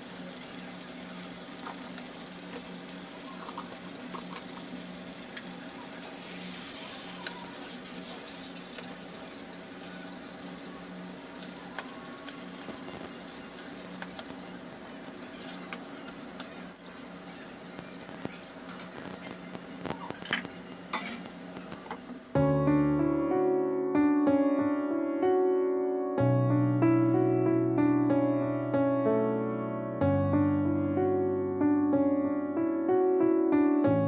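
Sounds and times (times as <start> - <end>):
curry sizzling in a pan: 0.0 - 22.6.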